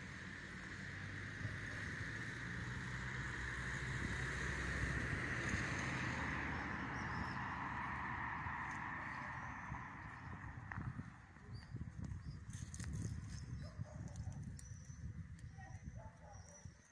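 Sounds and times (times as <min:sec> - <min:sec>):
vehicle passing: 0:00.2 - 0:11.5.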